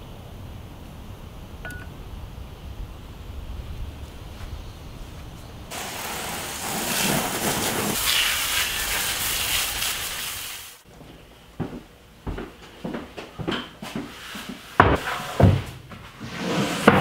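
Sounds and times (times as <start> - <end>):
dry concrete mix pouring from wheelbarrow: 5.7 - 10.4.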